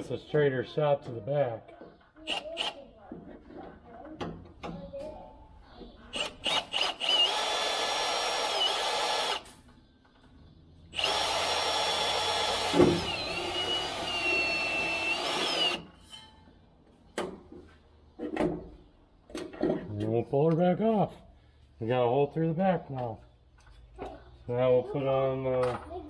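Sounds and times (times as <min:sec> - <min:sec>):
cordless drill whining: 0:06.2 - 0:09.5, 0:11.0 - 0:15.9.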